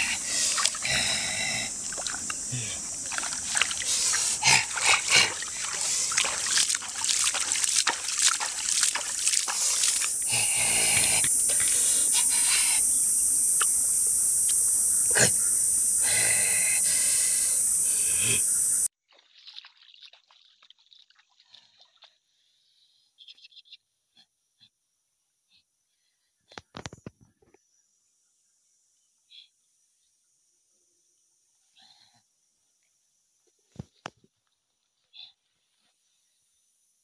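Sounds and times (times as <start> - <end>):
steady high-pitched hiss: 0.0 - 18.9
hands splashing in shallow water: 0.4 - 0.8, 1.8 - 10.3, 19.1 - 22.1.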